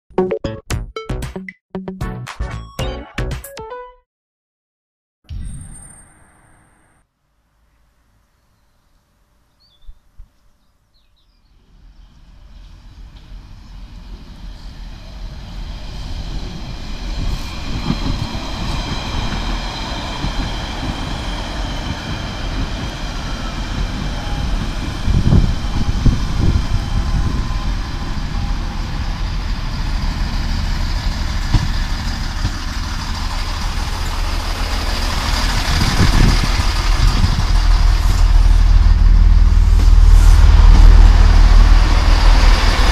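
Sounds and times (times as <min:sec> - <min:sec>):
diesel train engine and wheel rumble: 0:11.4 - 0:42.9.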